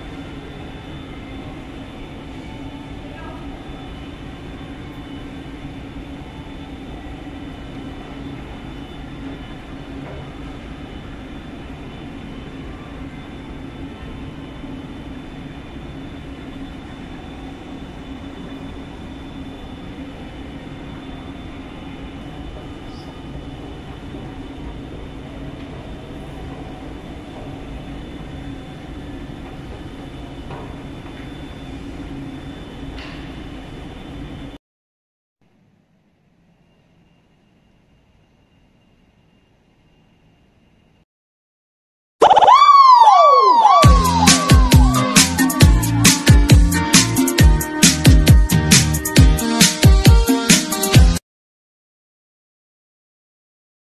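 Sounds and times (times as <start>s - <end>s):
faint high tones: 42.2s - 46.9s
low mechanical drone: 42.3s - 49.6s.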